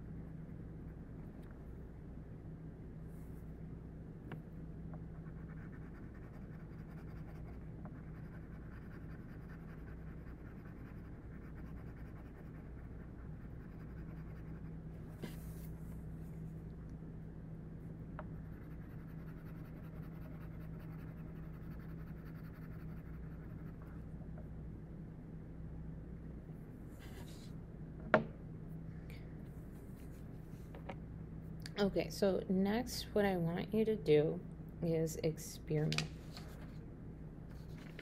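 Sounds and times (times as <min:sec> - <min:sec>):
low steady hum: 0:00.0 - 0:38.0
pencil scratching on paper: 0:05.2 - 0:14.7, 0:18.5 - 0:23.9.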